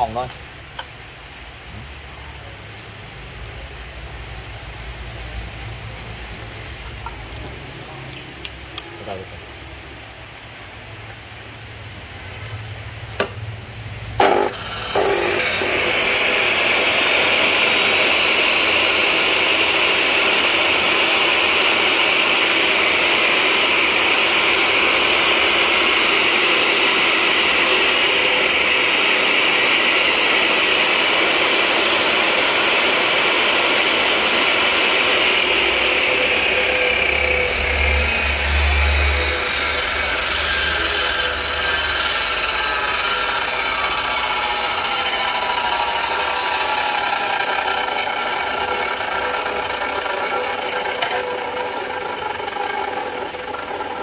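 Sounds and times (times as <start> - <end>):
electric saw running: 14.0 - 54.0.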